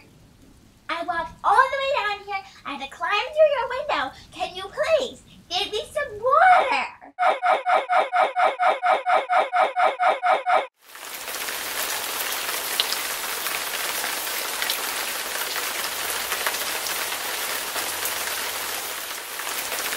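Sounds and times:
rain hiss: 0.0 - 5.6, 10.8 - 19.9.

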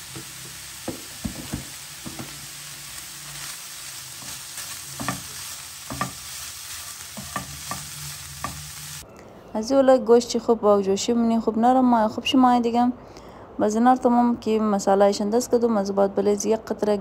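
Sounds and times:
chicken sizzling in a pan: 0.0 - 9.0
spatula knocking and scraping pan: 0.1 - 2.5, 4.1 - 9.0.

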